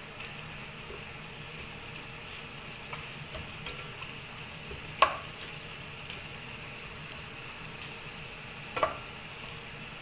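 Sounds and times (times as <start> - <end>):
meat and onion sizzling in pot: 0.0 - 10.0
spatula knocking against pot: 4.7 - 5.3, 8.8 - 9.0.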